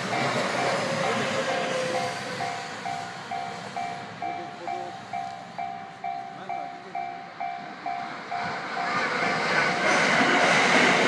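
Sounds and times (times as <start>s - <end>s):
level-crossing bell ringing: 0.0s - 9.1s
electric train passing: 0.0s - 11.0s
wheels clattering on rails: 0.0s - 11.0s.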